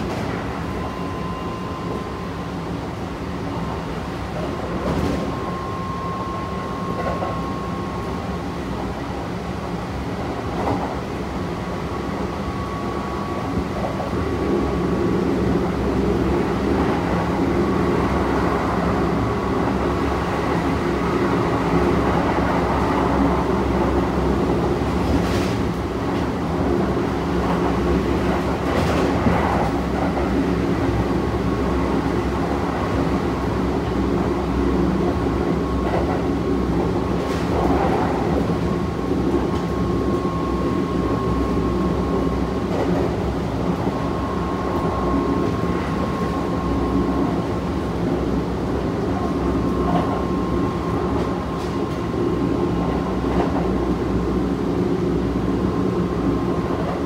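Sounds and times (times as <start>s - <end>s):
train running rumble and hum: 0.0s - 57.0s.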